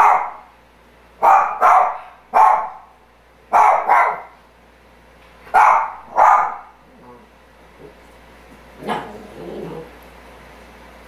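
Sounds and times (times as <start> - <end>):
dog barking: 0.0 - 0.5, 1.2 - 4.4, 5.5 - 6.8.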